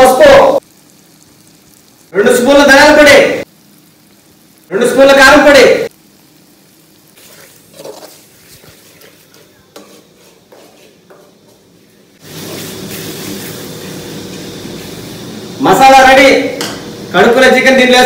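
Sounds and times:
masala sizzling: 0.0s - 18.0s
spoon scraping metal pan: 7.2s - 13.6s.

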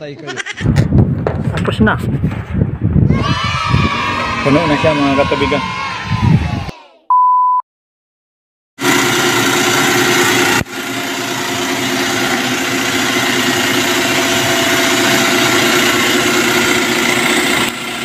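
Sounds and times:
pump motors humming: 8.8s - 18.0s.

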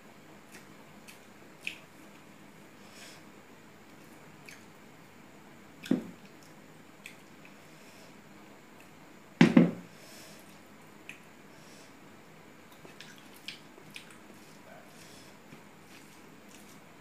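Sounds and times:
bowl knocking on table: 9.4s - 9.8s.

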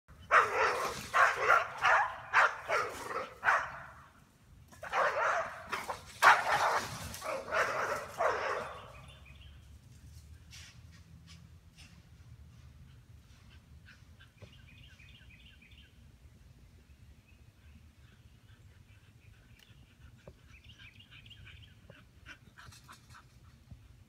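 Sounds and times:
dogs barking: 0.2s - 4.1s, 4.8s - 9.2s.

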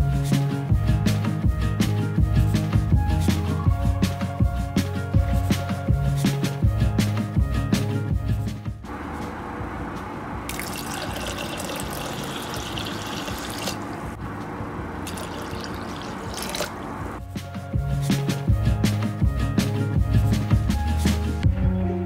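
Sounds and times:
water pouring onto lentils: 10.5s - 13.9s, 15.1s - 16.9s.

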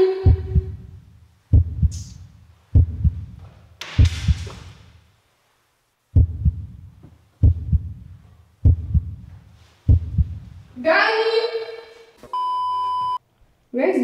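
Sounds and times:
heartbeat thumps: 0.2s - 4.7s, 6.1s - 10.7s.

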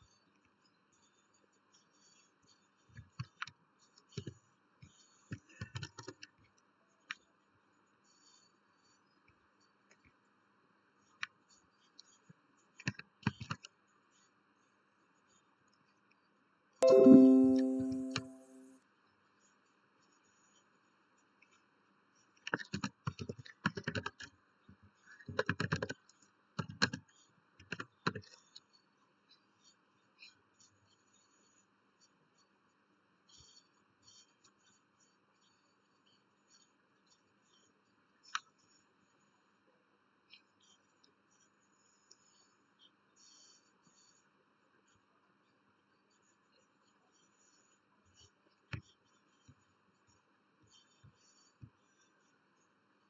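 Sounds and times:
keyboard and mouse clicking: 5.3s - 6.3s, 12.8s - 13.7s, 22.4s - 24.3s, 25.3s - 28.3s.

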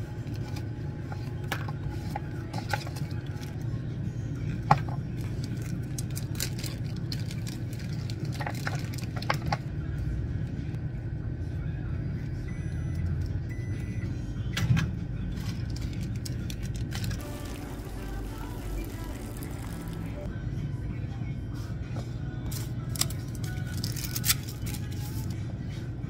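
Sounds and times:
steady low hum: 0.0s - 26.0s
sachet tearing: 5.2s - 9.2s, 15.7s - 20.3s, 22.9s - 25.3s
plastic packaging crinkling: 5.3s - 9.5s, 15.7s - 20.2s, 22.9s - 25.0s.

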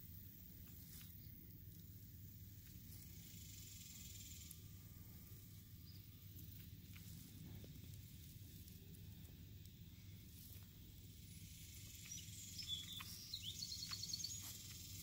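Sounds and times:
low outdoor hum: 0.0s - 15.0s
tortoise crunching grass: 0.0s - 15.0s
high chirps: 11.3s - 15.0s.

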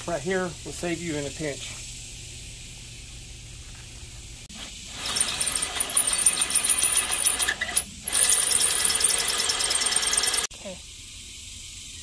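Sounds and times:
drill grinding into iron: 4.6s - 10.5s
drill bit squealing: 4.9s - 10.5s
fast ticking: 4.9s - 10.5s.

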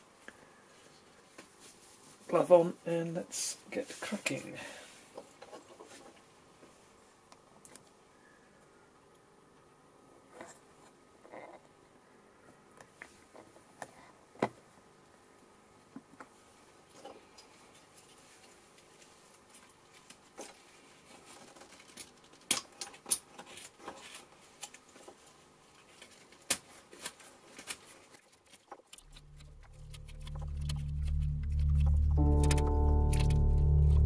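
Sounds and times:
low droning music: 29.1s - 34.0s.

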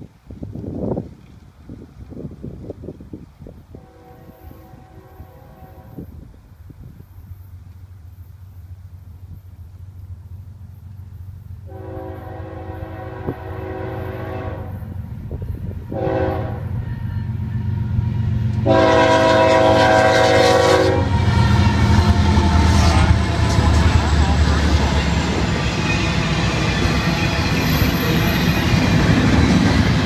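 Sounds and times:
locomotive air horn blasts: 3.7s - 6.2s, 11.7s - 14.9s, 15.9s - 24.0s
diesel engines rumbling: 14.6s - 30.0s.

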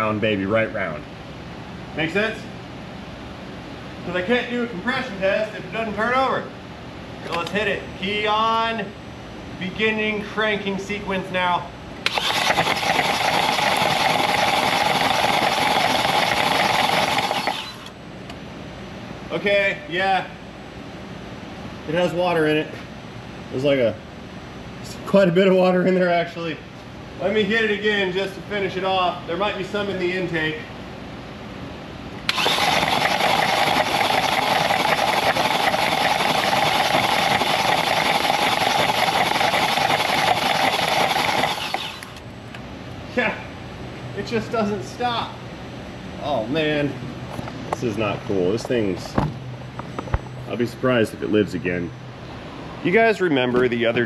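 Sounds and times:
starter motor cranking engine: 12.0s - 18.0s, 32.3s - 42.2s.

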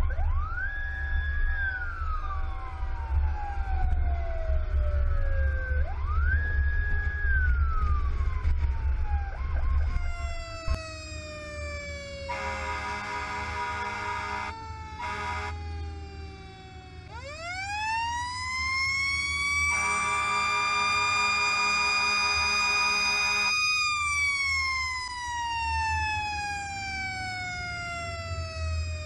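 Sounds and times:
wind rumbling on microphone: 0.0s - 10.8s
fire engine mechanical siren: 0.0s - 29.0s
air horn blasts: 12.3s - 15.6s, 19.7s - 23.5s.

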